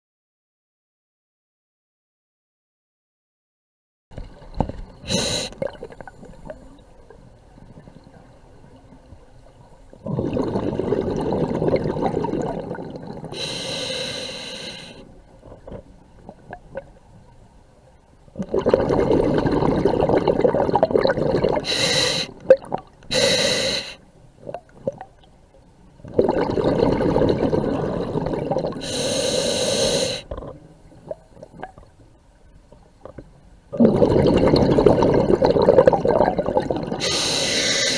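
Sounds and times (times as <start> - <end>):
regulator hissing inhalations: 5.1 - 5.6, 13.4 - 15.1, 21.7 - 22.4, 23.1 - 24.0, 28.8 - 30.3, 37.0 - 37.9
bubbling underwater exhalations: 10.0 - 13.5, 18.4 - 21.9, 26.0 - 29.1, 33.0 - 37.9.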